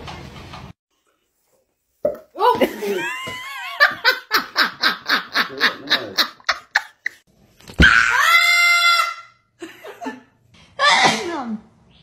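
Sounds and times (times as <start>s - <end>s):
woman laughing hard: 2.6s - 7.2s.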